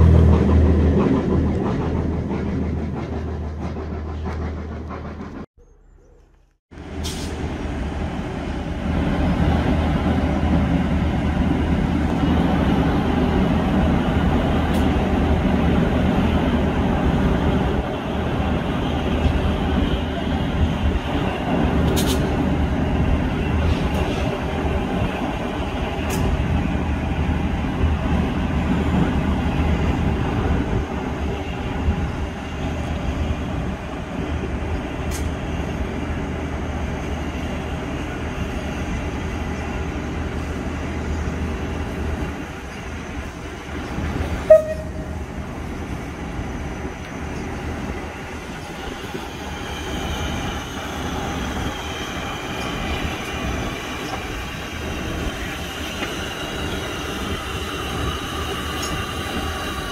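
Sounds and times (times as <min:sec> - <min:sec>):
steam locomotive hissing: 0:34.8 - 0:59.9.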